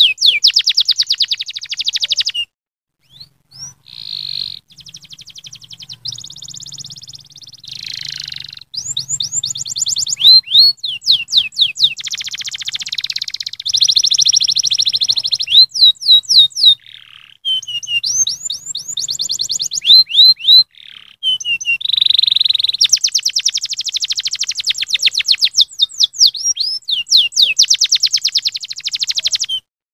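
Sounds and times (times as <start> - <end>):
canary singing trills: 0.0 - 29.7.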